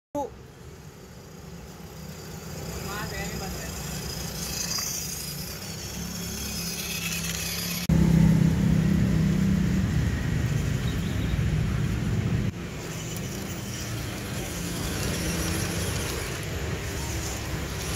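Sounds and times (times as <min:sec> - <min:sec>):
toy trucks motors whirring: 0:00.2 - 0:07.9, 0:12.0 - 0:17.9.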